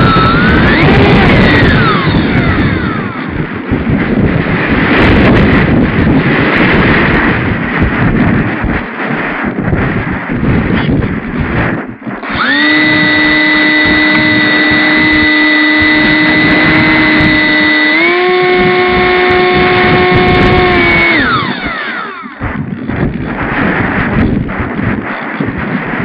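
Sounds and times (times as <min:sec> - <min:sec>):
electric motor propeller whine: 0:00.0 - 0:26.0
wind over microphone: 0:00.0 - 0:26.0.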